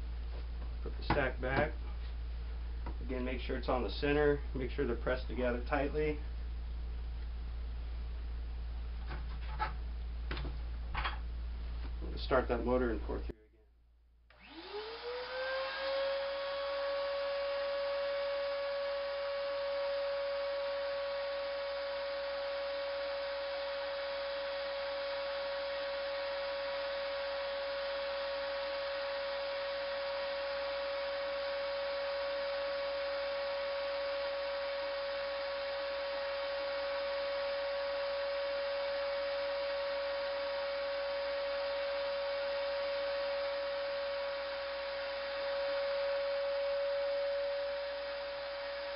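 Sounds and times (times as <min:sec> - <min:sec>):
shop vacuum whining: 0:14.3 - 0:48.9.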